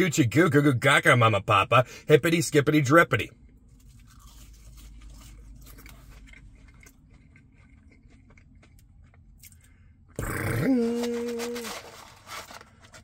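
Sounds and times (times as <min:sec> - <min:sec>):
man humming a note: 0:10.4 - 0:11.8.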